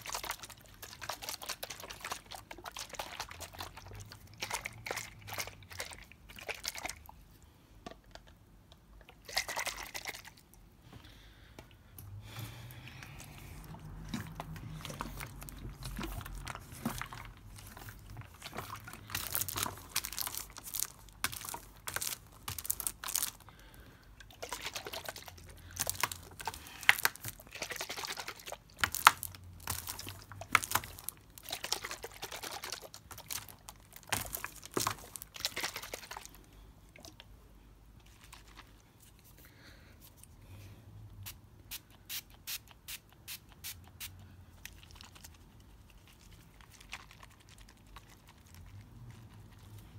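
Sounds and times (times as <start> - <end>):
water moving inside bottle: 13.0 - 23.4
plastic bottle crinkling and clicking: 13.6 - 23.6, 24.2 - 36.4.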